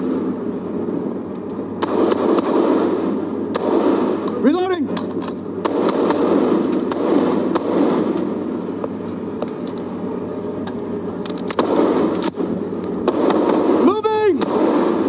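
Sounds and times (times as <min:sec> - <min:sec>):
sharp loud gunshot cracks: 0:01.8 - 0:08.3, 0:11.5 - 0:15.0
rifle gunfire crackle: 0:01.8 - 0:09.8, 0:11.2 - 0:15.0.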